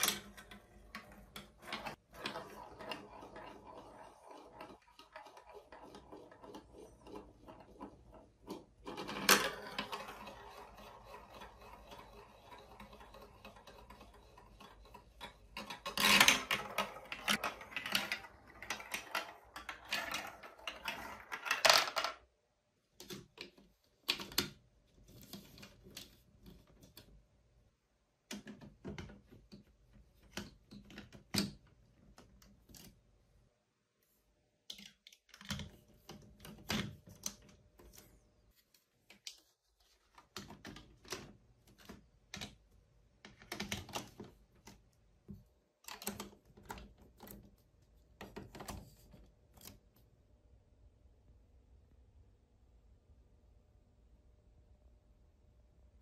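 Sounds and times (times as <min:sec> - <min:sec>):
marble rattling through plastic track: 0:00.0 - 0:22.3.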